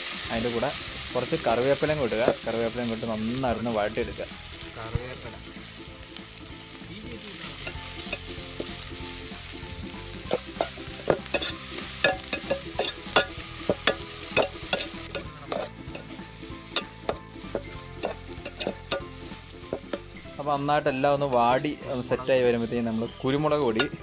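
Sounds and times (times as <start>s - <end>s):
onions sizzling in oil: 0.0s - 24.0s
metal spatula scraping pot: 10.2s - 20.1s.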